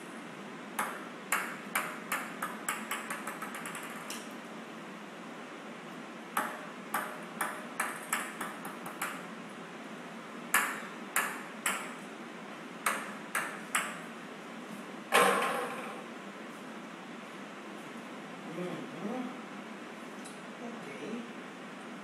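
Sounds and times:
small balls bouncing on hard floor: 0:00.8 - 0:04.4, 0:06.4 - 0:09.2.

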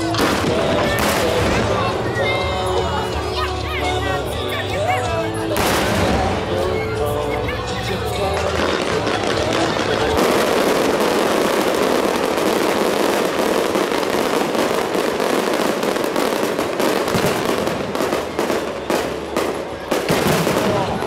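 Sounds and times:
firework bangs: 0:00.0 - 0:02.4, 0:05.6 - 0:06.9, 0:08.3 - 0:21.0
fireworks crackling: 0:00.0 - 0:21.0.

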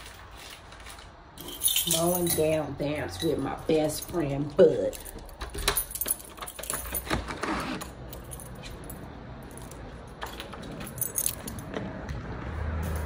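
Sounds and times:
metal pieces jingling: 0:01.3 - 0:07.1, 0:08.1 - 0:11.7.

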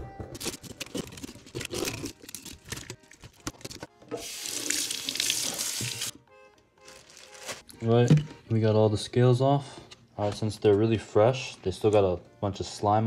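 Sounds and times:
faucet running into sink: 0:04.2 - 0:06.1.

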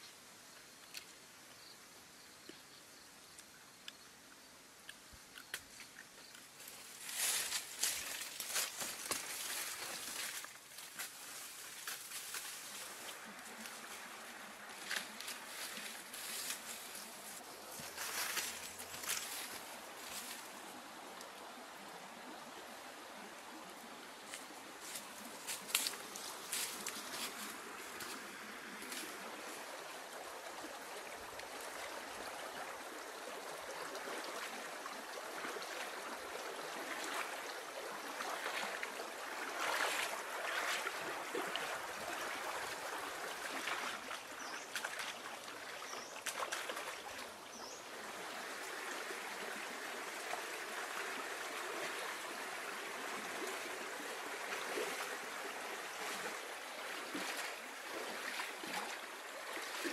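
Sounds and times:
running water: 0:04.9 - 0:59.9.

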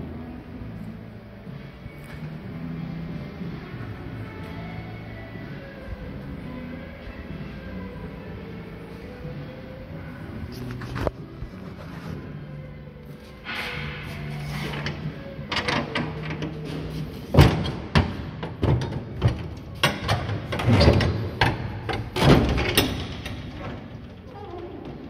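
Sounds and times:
metal creaking: 0:09.2 - 0:25.0
metal door clanks and knocks: 0:17.3 - 0:24.0.

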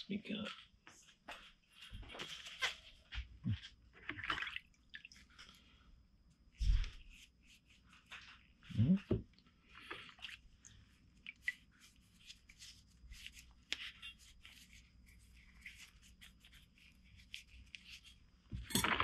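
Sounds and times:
faint rustling of gloved hands: 0:00.2 - 0:04.0, 0:05.2 - 0:08.7, 0:09.4 - 0:18.6.

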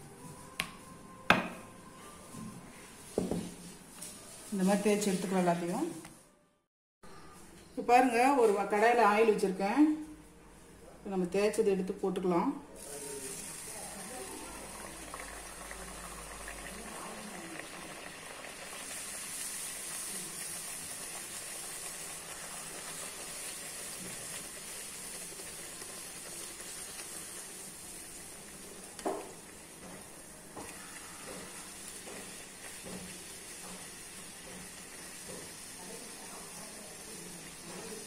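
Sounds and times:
oil sizzling while deep-frying: 0:12.8 - 0:38.0.

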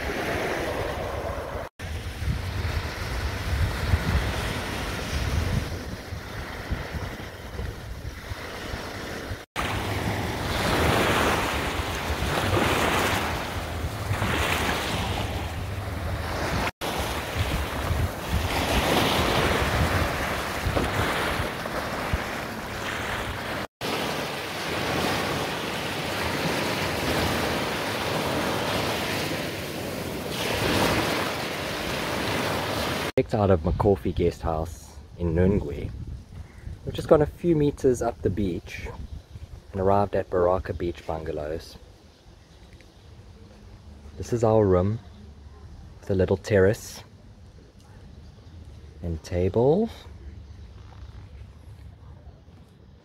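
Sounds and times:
wind buffeting the microphone: 0:00.0 - 0:23.7, 0:35.0 - 0:37.4, 0:38.0 - 0:39.8
waves washing up a shore: 0:00.0 - 0:33.2.

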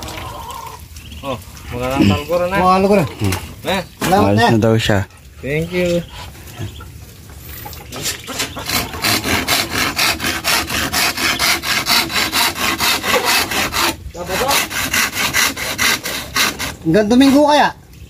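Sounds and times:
hand saw cutting wood: 0:08.0 - 0:17.6.

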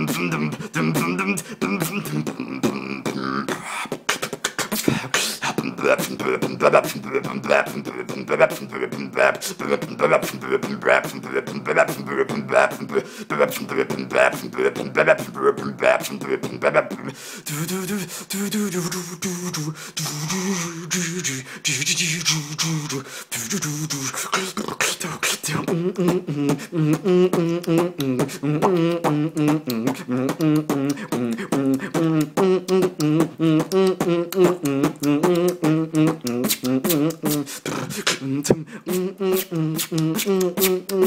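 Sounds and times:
person beatboxing: 0:00.0 - 0:41.0
hummed melody: 0:25.6 - 0:37.5.

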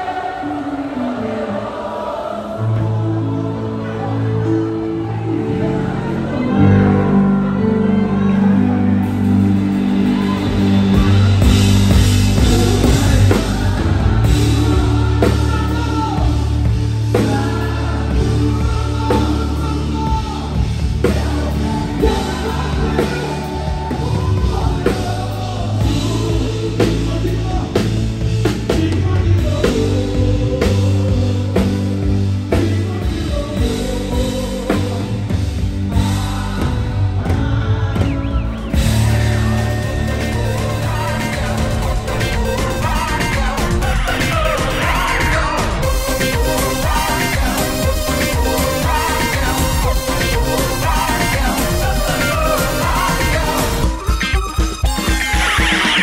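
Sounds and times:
live band playing gospel: 0:00.0 - 0:56.0
person singing: 0:00.0 - 0:56.0.

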